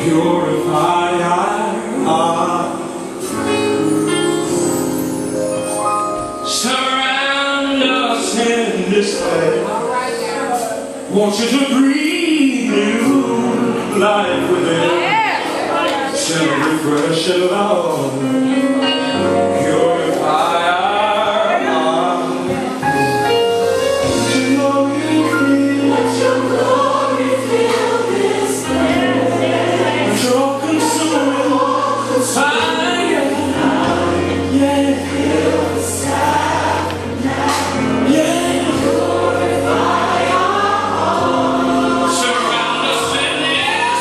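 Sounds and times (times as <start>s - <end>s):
choir singing gospel song: 0.0s - 44.0s.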